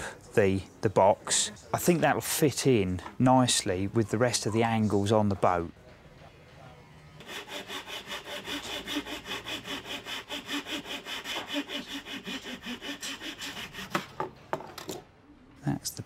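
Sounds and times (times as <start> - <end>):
hand saw cutting wood: 7.2 - 14.2.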